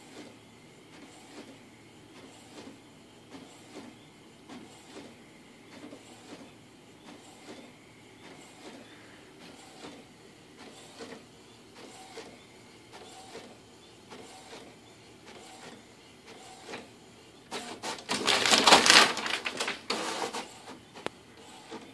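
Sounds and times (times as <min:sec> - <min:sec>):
inkjet printer printing: 0:00.0 - 0:21.9
paper rustling and clattering: 0:17.6 - 0:20.5.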